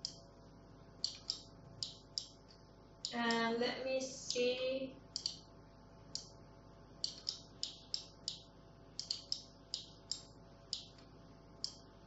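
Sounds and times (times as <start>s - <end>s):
computer mouse clicking: 0.0s - 0.2s, 1.0s - 3.5s, 5.1s - 5.5s, 6.1s - 6.4s, 7.0s - 11.9s.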